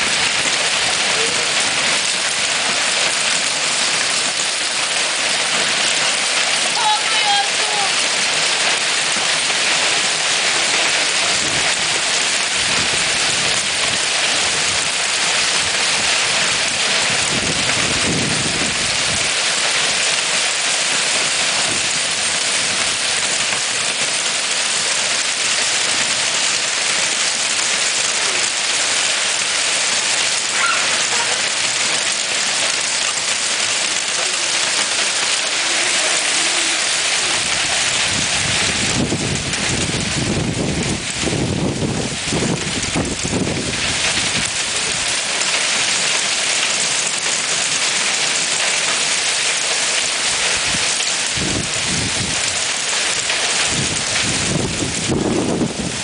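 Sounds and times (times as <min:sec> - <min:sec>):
hail and rain falling: 0:00.0 - 0:56.0.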